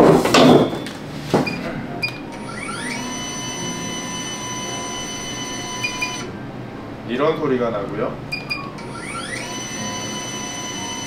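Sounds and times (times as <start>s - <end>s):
chair scraping: 0.0s - 2.1s
drone motors whining: 2.3s - 6.3s, 8.7s - 11.0s.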